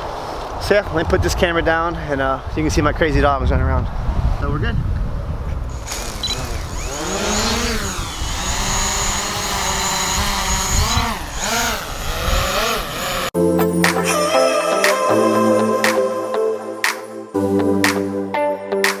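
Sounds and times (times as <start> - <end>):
drone motors buzzing whine: 5.7 - 13.3.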